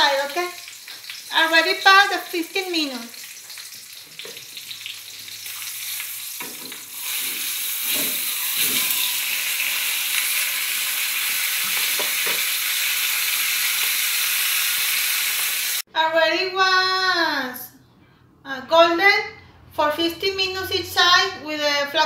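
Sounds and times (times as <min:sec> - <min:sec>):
meat sizzling in a frying pan: 0:00.0 - 0:15.8.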